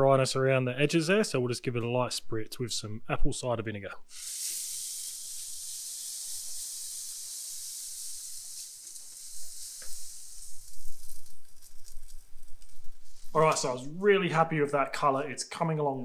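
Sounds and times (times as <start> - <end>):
liquid sizzling on hot grate: 4.1 - 13.8
spray bottle hissing: 4.1 - 13.8.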